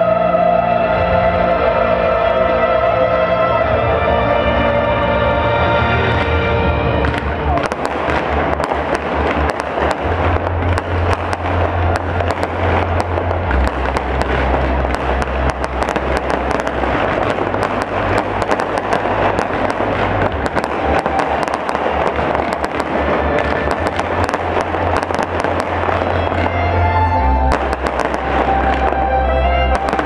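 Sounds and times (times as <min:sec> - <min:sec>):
fireworks crackling and popping: 0:07.0 - 0:30.0.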